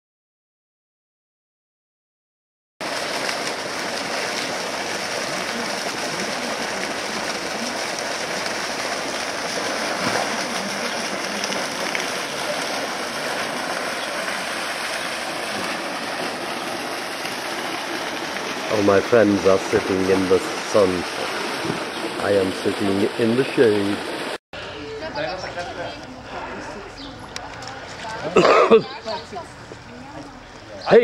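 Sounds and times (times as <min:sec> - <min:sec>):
fountain water splashing into pool: 0:02.8 - 0:24.4.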